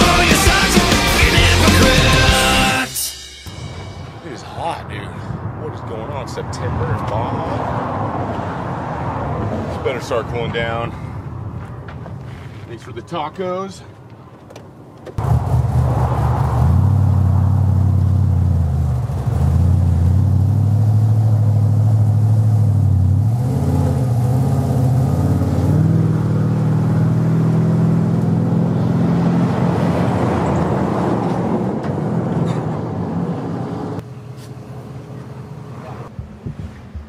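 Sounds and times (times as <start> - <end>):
pickup truck engines pulling away: 0.0 - 2.8, 15.2 - 36.2.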